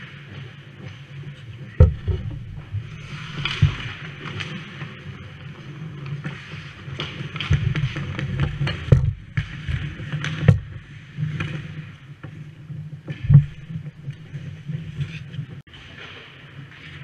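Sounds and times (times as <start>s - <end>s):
skates scraping ice: 0.0s - 17.0s
steady low hum: 1.6s - 4.1s
hockey sticks and puck knocking: 1.8s - 5.0s, 6.0s - 12.4s.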